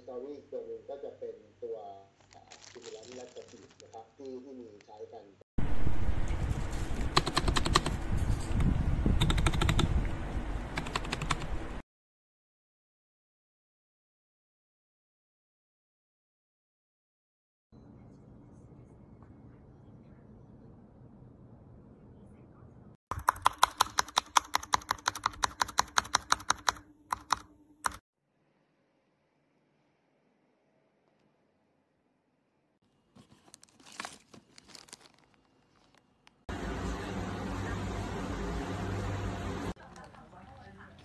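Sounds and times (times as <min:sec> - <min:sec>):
mechanical keyboard clacking: 0:07.1 - 0:08.0, 0:09.2 - 0:09.9, 0:10.8 - 0:11.5, 0:23.1 - 0:28.0.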